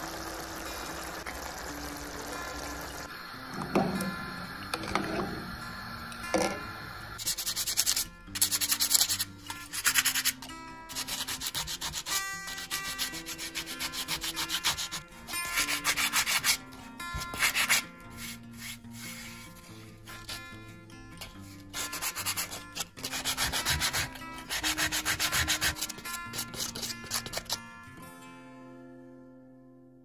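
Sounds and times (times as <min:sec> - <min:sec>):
quiet background music: 0:00.1 - 0:30.0
sandpaper rubbing back and forth: 0:07.2 - 0:16.6, 0:17.3 - 0:20.4, 0:21.7 - 0:27.6.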